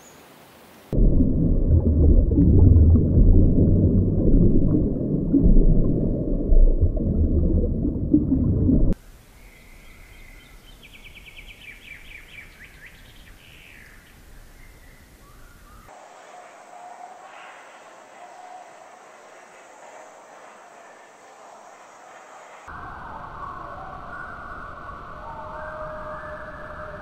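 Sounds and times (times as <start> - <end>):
low rush of underwater noise: 0.9 - 9.0.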